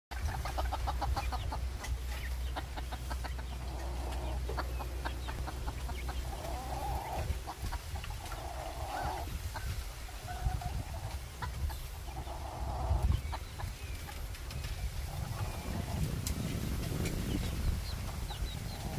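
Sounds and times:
wind rumble on microphone: 0:00.1 - 0:18.9
rooster clucking and calling: 0:00.2 - 0:14.2.

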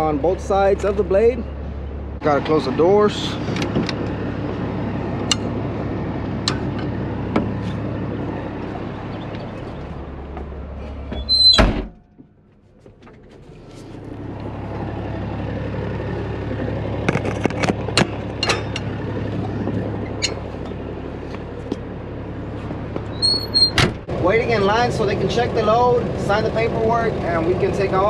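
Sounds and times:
low engine hum: 0:00.0 - 0:28.0
cab door slamming: 0:11.2 - 0:12.1, 0:23.4 - 0:24.1.

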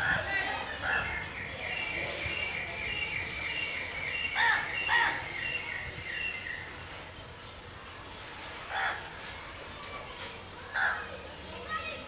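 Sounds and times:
harsh bird calls: 0:00.7 - 0:07.6.

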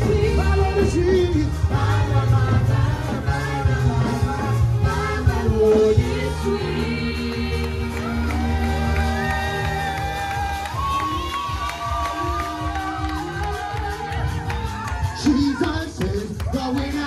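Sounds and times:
people singing: 0:00.0 - 0:10.0
bass beat: 0:00.0 - 0:17.0
church praise band: 0:00.0 - 0:17.0.

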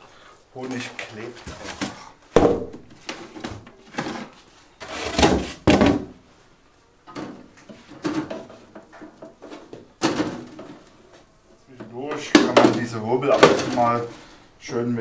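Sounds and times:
wooden frame knocks and thumps: 0:01.4 - 0:04.3, 0:05.0 - 0:06.2, 0:07.1 - 0:10.8, 0:11.8 - 0:14.1.

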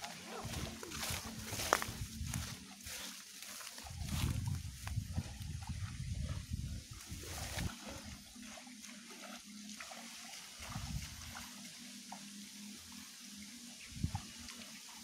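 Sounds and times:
water trickling and sloshing: 0:00.0 - 0:15.0
wind rumble on microphone: 0:00.1 - 0:02.8, 0:03.8 - 0:08.3, 0:10.6 - 0:11.4, 0:13.8 - 0:14.4.

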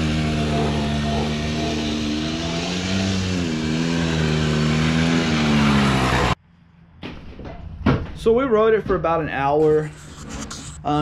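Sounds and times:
two-stroke engine revving: 0:00.0 - 0:06.4.

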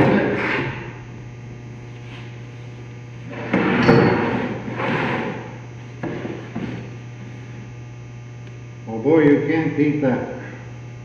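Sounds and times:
boards sliding and scraping: 0:00.0 - 0:00.9, 0:01.9 - 0:07.6
steady low hum: 0:00.0 - 0:11.0.

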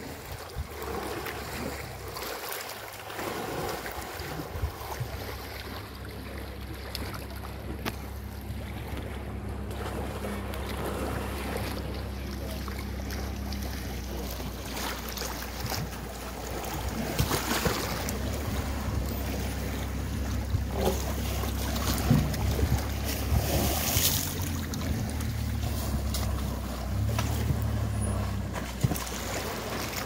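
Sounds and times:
water splashing and sloshing: 0:00.0 - 0:30.0
wind buffeting microphone: 0:21.5 - 0:25.7.

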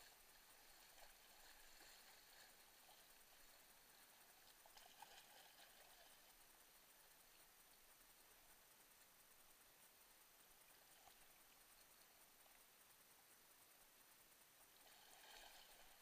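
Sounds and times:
faint splashes: 0:00.0 - 0:08.1, 0:14.6 - 0:16.0.

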